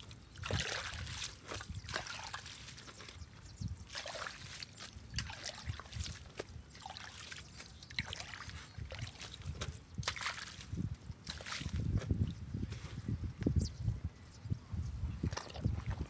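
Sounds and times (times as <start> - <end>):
water splashes: 0.0 - 3.2, 3.8 - 11.8
muddy water sloshing: 0.0 - 12.8, 15.3 - 16.0.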